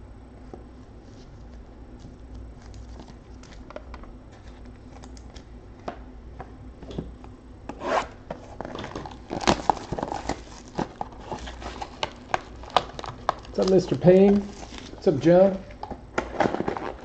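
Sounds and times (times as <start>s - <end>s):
cardboard and plastic rustling: 1.0s - 5.9s, 8.3s - 17.0s
plastic wrap ripping and crinkling: 1.2s - 3.7s, 8.5s - 17.0s.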